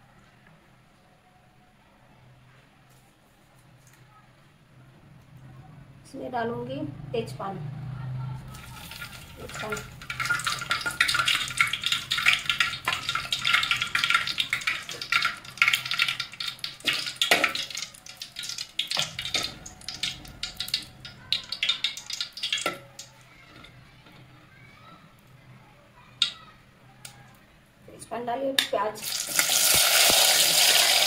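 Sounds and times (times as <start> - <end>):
spices sizzling in hot oil: 8.5 - 23.1, 29.0 - 31.0
spoon stirring and clicking on pot: 8.8 - 24.3.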